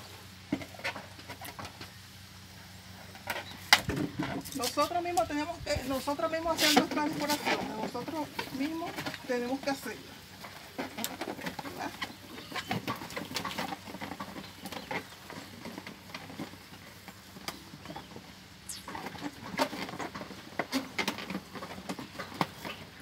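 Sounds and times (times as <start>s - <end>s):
balloons rubbing and squeaking: 18.7s - 20.0s.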